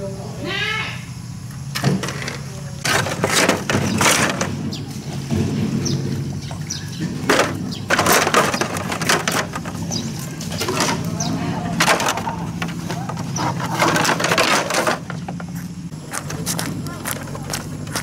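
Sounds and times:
plastic panels clattering: 1.8 - 4.6, 7.0 - 15.5.

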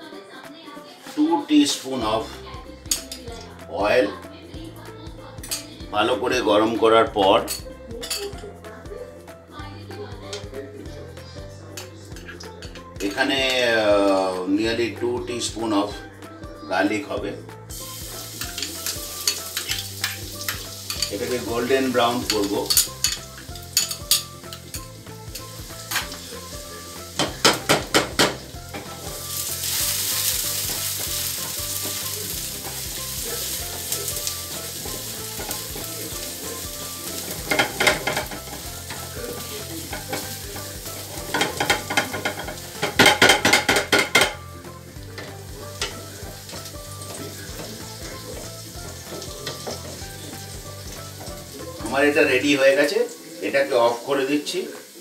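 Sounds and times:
garlic sizzling in oil: 0.9 - 3.4, 17.7 - 55.0.

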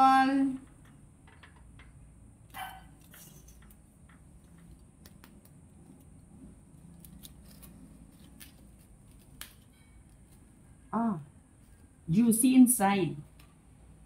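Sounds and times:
knife cutting crackling pork skin: 6.8 - 10.4.

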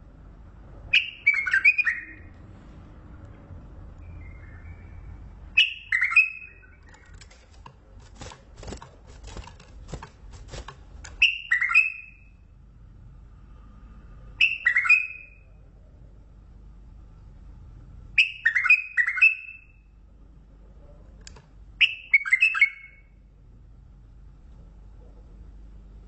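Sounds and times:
bird singing falling notes: 4.0 - 7.6, 11.1 - 12.4.

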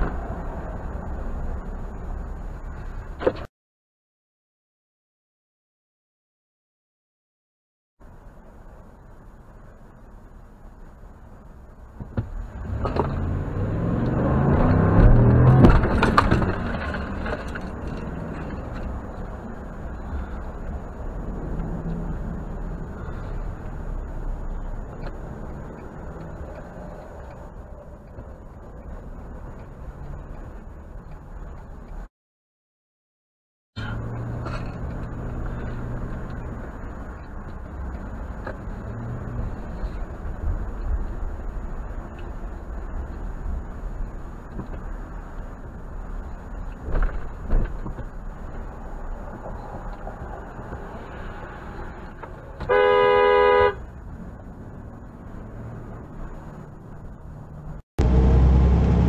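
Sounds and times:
engine and tyre rumble: 0.0 - 3.5, 8.0 - 32.1, 33.8 - 59.0
low engine hum: 8.0 - 32.1, 33.8 - 59.0
truck engine revving: 12.6 - 17.1, 58.0 - 59.0.

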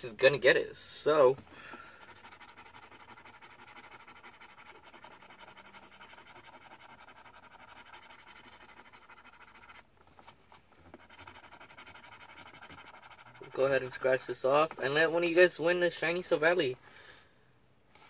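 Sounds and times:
rapid scratching on card: 1.7 - 15.3.

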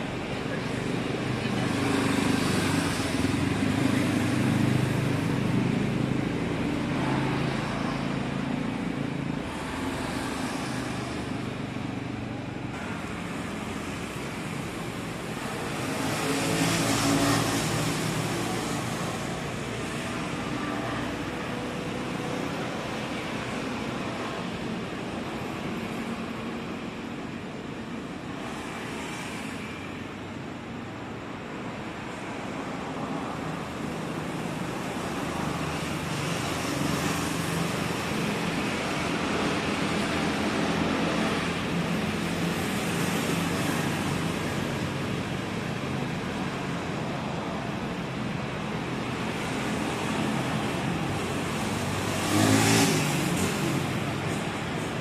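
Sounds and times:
passing vehicle engines and tyres: 0.0 - 55.0
closer vehicle passing: 32.1 - 55.0.

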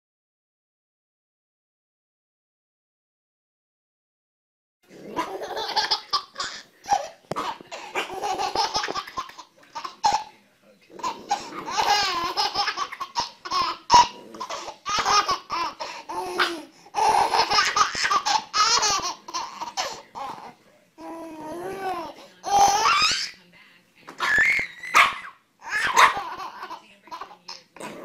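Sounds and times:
baby laughing: 5.2 - 10.4, 11.0 - 23.4, 24.1 - 27.6.

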